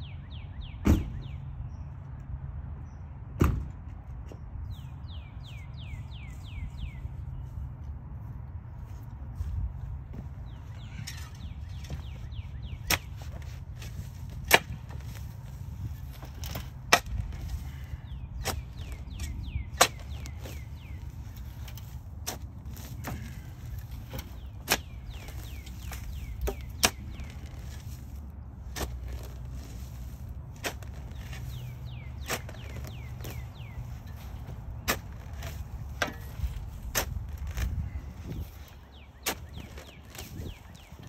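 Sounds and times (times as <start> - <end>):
shovel striking soil: 12.8 - 15.3, 16.1 - 37.8, 39.2 - 40.8.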